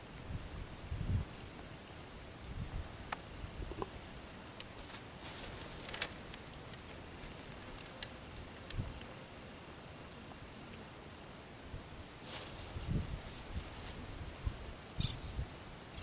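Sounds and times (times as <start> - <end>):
short rustle: 4.7 - 9.2, 12.2 - 14.8.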